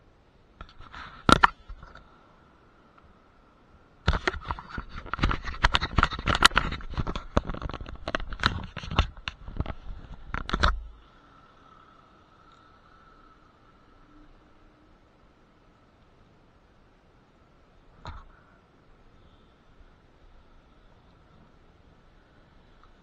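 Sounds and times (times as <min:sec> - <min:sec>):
scraping and clicking: 0:04.1 - 0:11.0.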